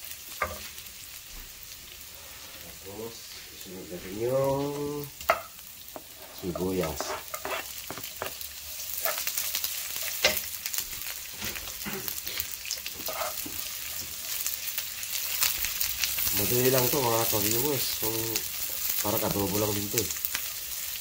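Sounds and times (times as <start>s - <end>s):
onion sizzling in hot oil: 0.0s - 21.0s
wooden spatula scraping pan: 6.0s - 8.4s, 11.4s - 14.3s.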